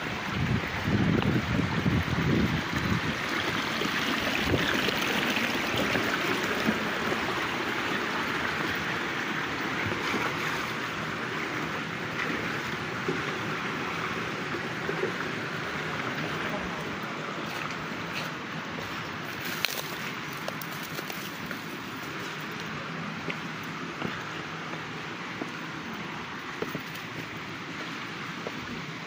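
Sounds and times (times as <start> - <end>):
creek water over rocks: 0.0 - 29.0.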